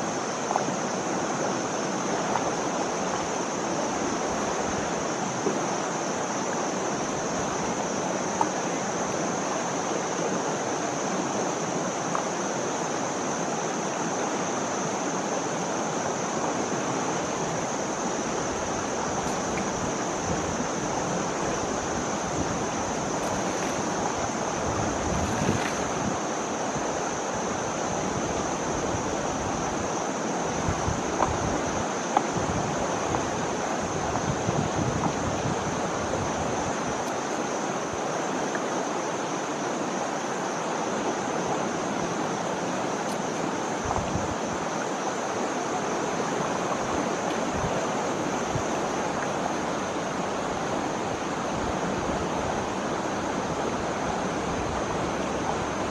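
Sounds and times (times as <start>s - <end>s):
river water rushing: 0.0s - 55.9s.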